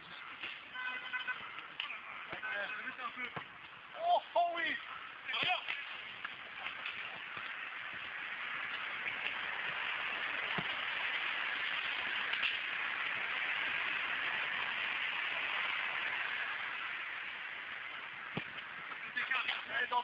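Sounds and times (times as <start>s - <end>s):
microphone hiss: 0.0s - 20.0s.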